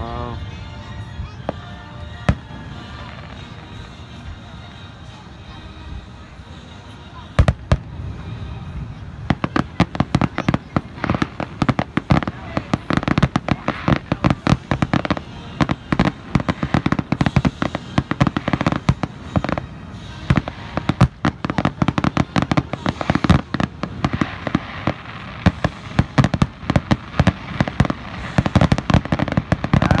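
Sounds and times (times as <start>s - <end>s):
fireworks bursting: 7.3s - 30.0s.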